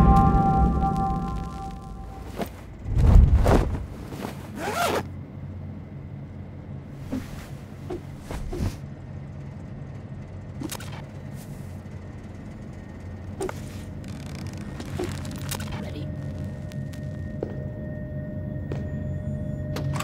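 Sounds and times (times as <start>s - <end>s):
deep low boom: 0.0s - 3.4s
steady low hum: 0.0s - 20.0s
short swishes and zip sweeps: 7.0s - 8.8s.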